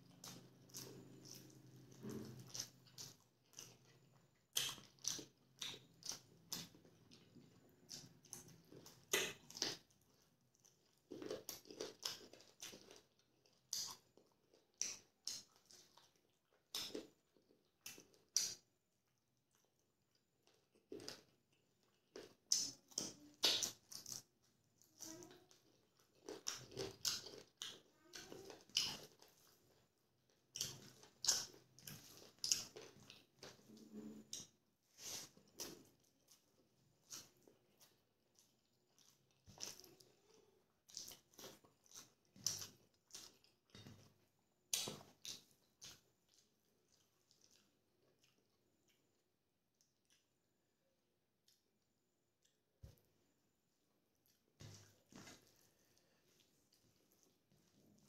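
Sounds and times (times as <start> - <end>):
man chewing with wet clicks: 0.0 - 50.6, 51.3 - 53.0, 54.1 - 58.0
lip smacks: 4.5 - 6.8, 44.7 - 48.4.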